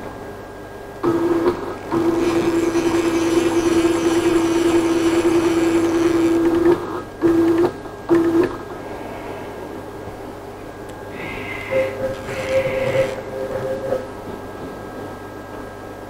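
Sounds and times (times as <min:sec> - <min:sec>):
stepper motors whining: 0:01.0 - 0:08.4, 0:11.2 - 0:14.3.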